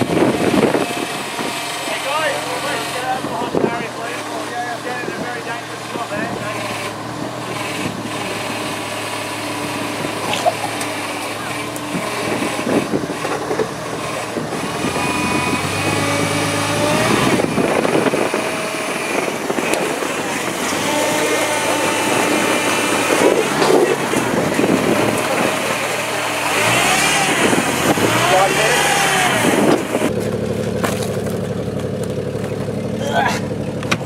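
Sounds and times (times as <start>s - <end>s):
buggy engine revving under load: 0.0s - 34.0s.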